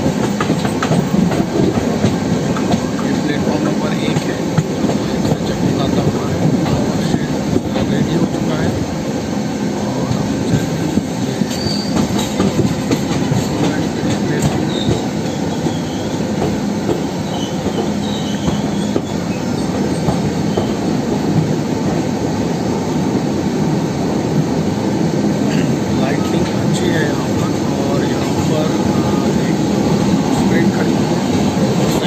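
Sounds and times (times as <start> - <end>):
train wheels rumbling on rails: 0.0 - 32.0
faint wheel squeal: 11.5 - 12.2, 14.6 - 16.2, 17.2 - 20.8.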